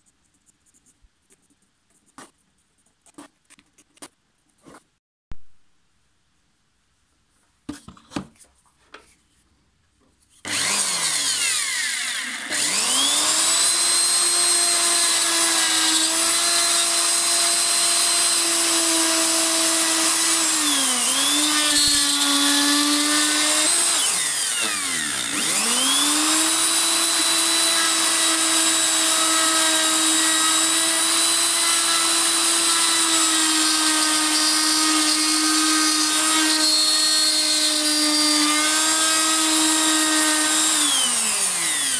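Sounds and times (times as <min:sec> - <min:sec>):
router motor high whine: 0:10.5 - 0:41.9.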